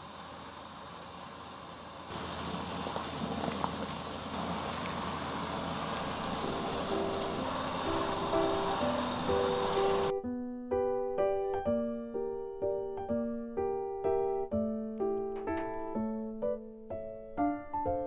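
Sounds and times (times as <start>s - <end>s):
water simmering and bubbling: 2.1s - 10.1s
light piano music: 6.0s - 18.0s.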